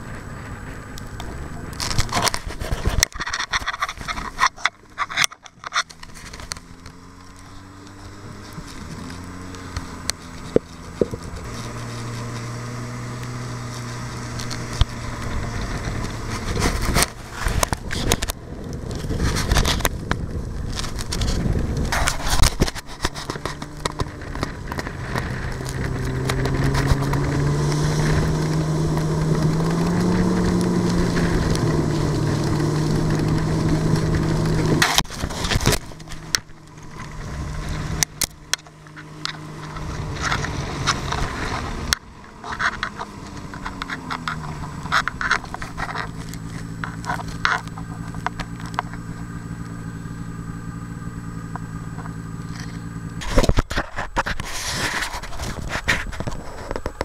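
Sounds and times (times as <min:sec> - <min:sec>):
sled scraping over snow: 0:00.0 - 0:57.0
snowmobile engine running: 0:00.0 - 0:57.0.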